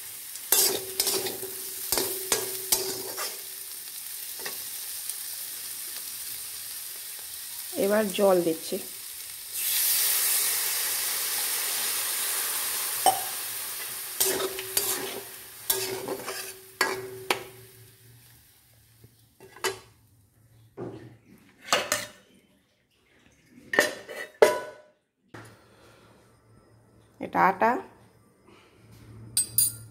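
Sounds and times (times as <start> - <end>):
water sizzling in hot pan: 0.0 - 19.1
metal spatula scraping pan: 0.5 - 3.5, 14.2 - 17.7, 21.6 - 22.2, 23.7 - 24.6
steel plate clanking on pan: 0.6 - 3.3, 13.0 - 13.3, 14.2 - 17.8, 23.8 - 24.8.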